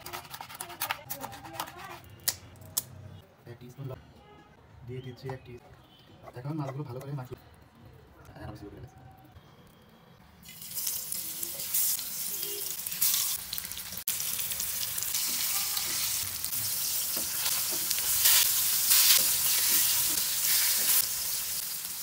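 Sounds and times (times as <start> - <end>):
fish sizzling in oil: 10.4 - 22.0.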